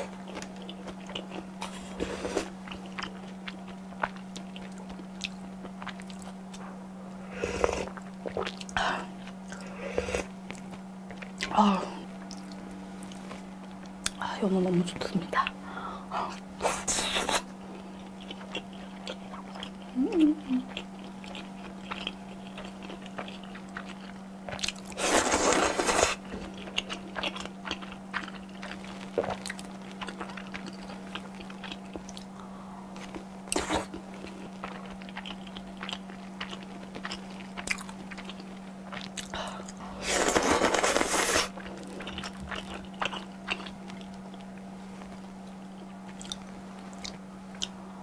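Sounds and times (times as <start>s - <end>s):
chewing with wet mouth clicks: 2.6s - 6.6s, 12.2s - 14.2s, 18.0s - 25.0s, 26.4s - 32.4s, 33.0s - 39.8s, 41.6s - 47.8s.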